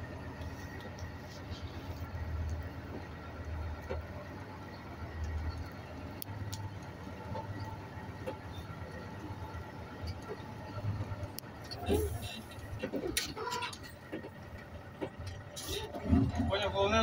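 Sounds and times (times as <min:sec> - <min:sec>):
truck diesel engine rumbling: 0:00.0 - 0:17.0
faint clicks: 0:05.2 - 0:09.0.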